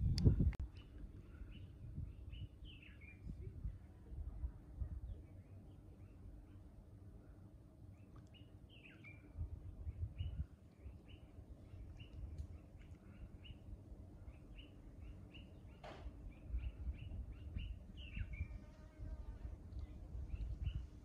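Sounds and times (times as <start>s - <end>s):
low rumble: 0.0s - 2.5s
bird chirping: 0.7s - 3.4s, 7.9s - 21.0s.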